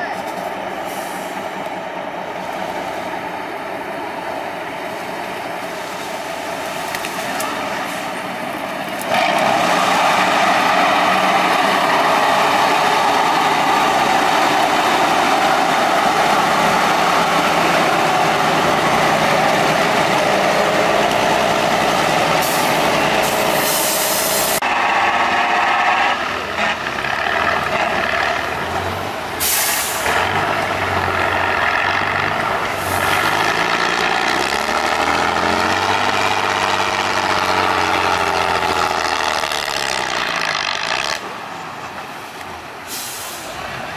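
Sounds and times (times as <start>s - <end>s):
heavy truck engines revving: 0.0s - 43.9s
air brake hiss: 0.9s - 1.4s, 23.6s - 24.6s, 29.4s - 30.0s, 42.9s - 43.6s.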